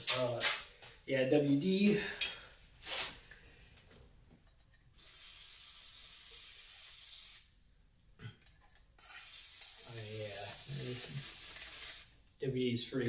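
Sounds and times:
aerosol can spraying: 5.0 - 7.5, 9.0 - 12.1.

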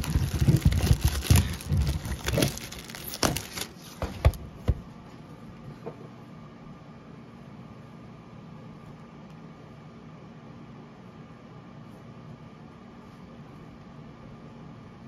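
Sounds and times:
shrink wrap crinkling and tearing: 0.0 - 4.1.

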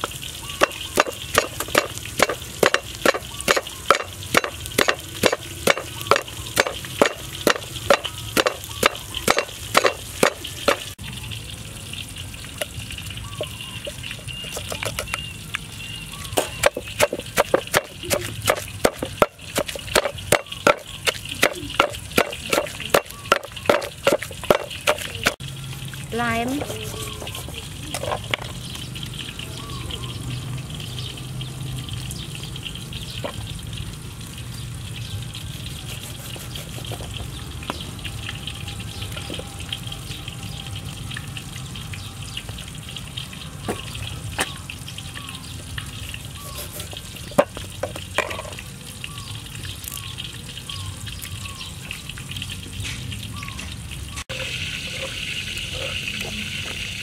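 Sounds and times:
wooden pestle pounding in mortar: 0.6 - 10.9, 16.4 - 25.4.

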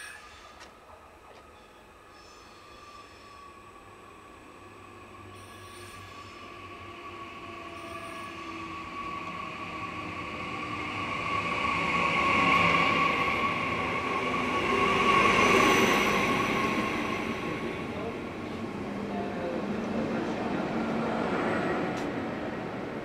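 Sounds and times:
high squeal: 0.0 - 0.6, 1.6 - 3.6, 5.3 - 17.7
electric train arriving: 0.0 - 23.0.

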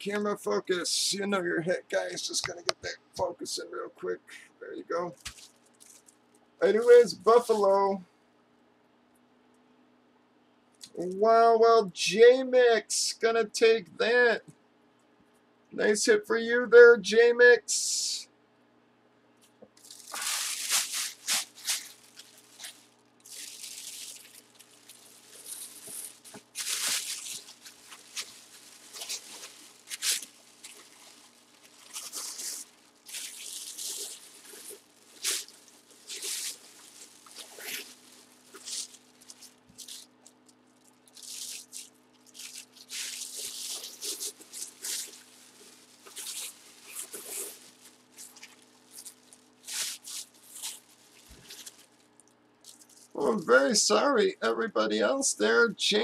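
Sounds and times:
plastic bag crinkling: 5.1 - 7.5, 19.8 - 53.2.

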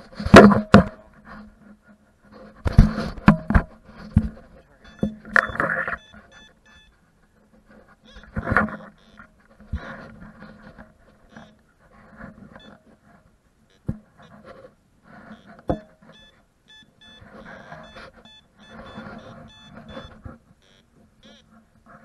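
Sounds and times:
sharp knocks: 0.2 - 1.0
metal detector short beeps: 4.8 - 7.0, 8.0 - 9.2, 15.3 - 15.5, 16.1 - 21.5.

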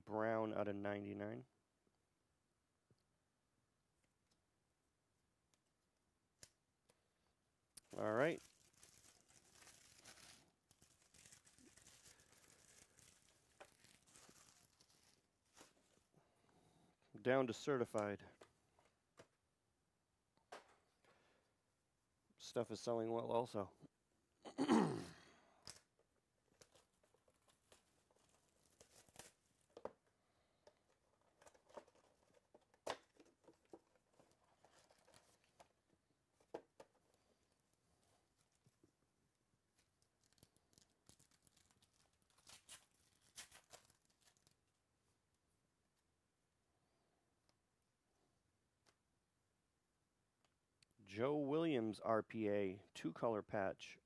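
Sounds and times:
plastic shrink-wrap tearing: 7.8 - 15.2, 40.2 - 44.6
rustle of cards and wrappers: 7.8 - 16.1, 26.5 - 38.9, 39.7 - 44.7.

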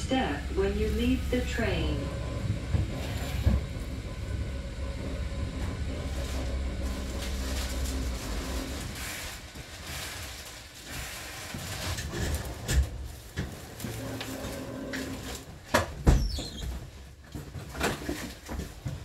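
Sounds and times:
faint hum: 0.0 - 11.1
train wheels rumbling: 0.0 - 17.0.

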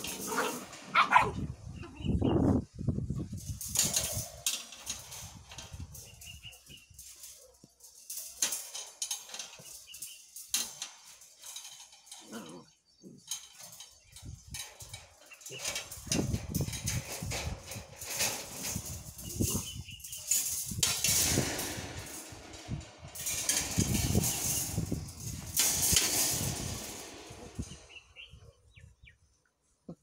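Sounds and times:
claws scrabbling on concrete: 0.0 - 1.4.

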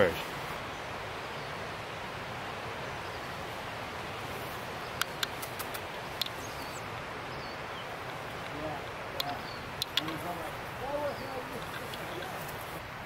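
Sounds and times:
sharp clicks: 5.0 - 6.4, 9.2 - 10.4.

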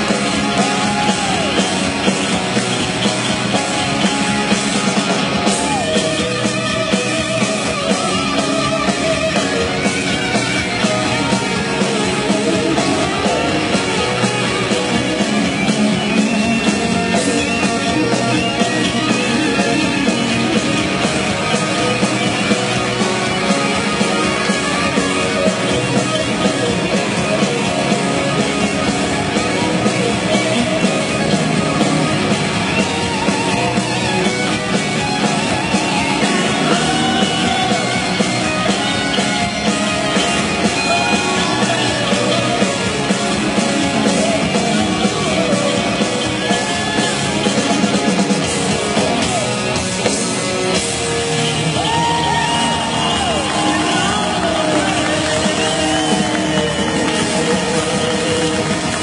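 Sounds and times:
electric guitars: 0.0 - 59.0
loud live rock band: 0.0 - 59.0.

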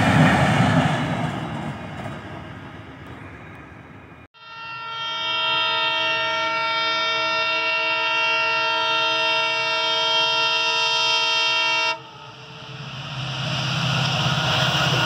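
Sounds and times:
locomotive horn blast: 4.4 - 12.7.

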